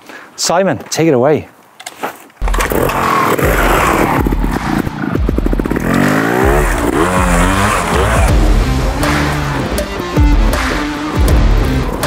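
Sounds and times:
motorcycle engine chugging and revving: 2.4 - 12.0.

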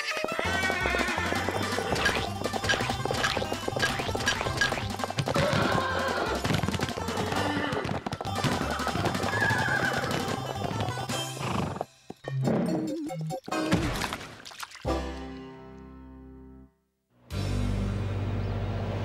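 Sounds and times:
horse whinnying: 0.0 - 2.2, 5.3 - 8.1, 8.7 - 11.9
cartoon music: 0.0 - 7.4.

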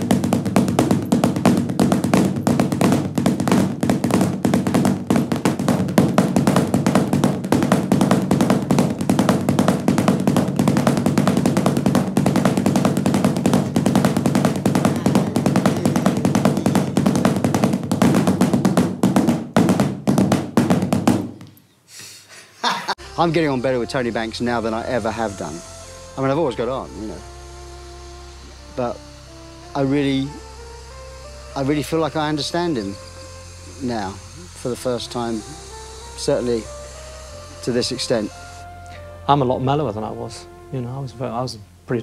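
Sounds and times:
drumsticks on padded footstool: 0.0 - 21.6.

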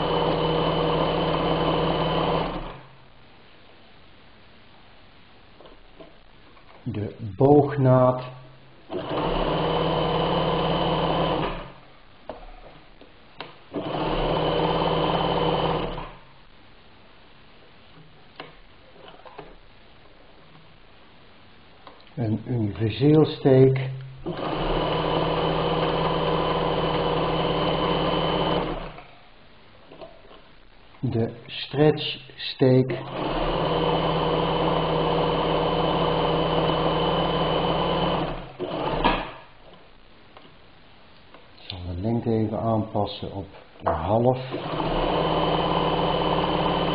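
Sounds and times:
sewing machine stitching: 0.0 - 2.9, 8.9 - 11.8, 13.7 - 16.2, 24.2 - 29.1, 32.9 - 39.5, 44.5 - 46.9.

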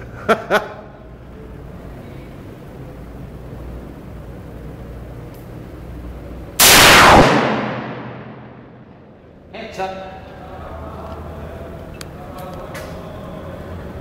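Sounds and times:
revolver shot: 6.6 - 9.0.

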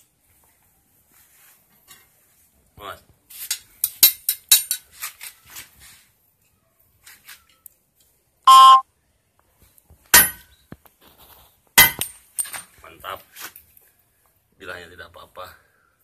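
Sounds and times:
sharp metal clang: 10.2 - 10.5, 11.8 - 12.2.

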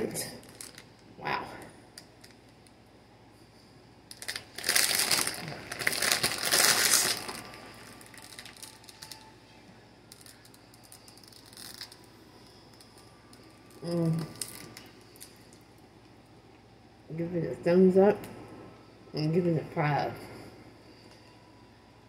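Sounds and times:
plastic bag crinkling: 0.0 - 1.0, 4.1 - 9.4, 10.0 - 15.6.

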